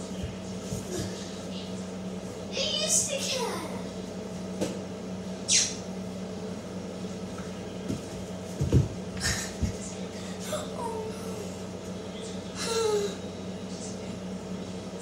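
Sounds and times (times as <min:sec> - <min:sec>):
steady low hum: 0:00.0 - 0:15.0
thumps on hard floor: 0:07.9 - 0:09.0.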